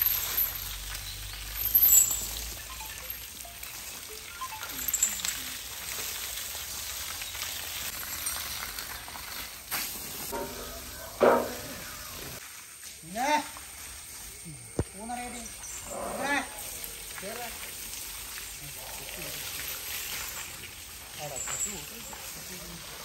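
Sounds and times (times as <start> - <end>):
hose water spraying and splashing: 0.0 - 23.0
elephant call: 10.3 - 12.4.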